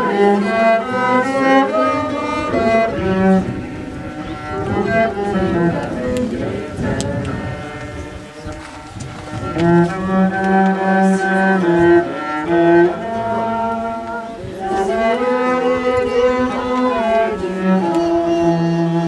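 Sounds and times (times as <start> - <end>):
bowed string instrument melody: 0.0 - 19.0.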